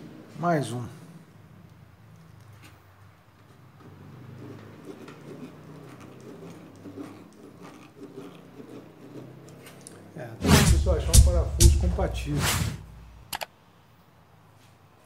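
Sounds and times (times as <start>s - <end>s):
screwdriver scratching metal: 3.4s - 12.7s.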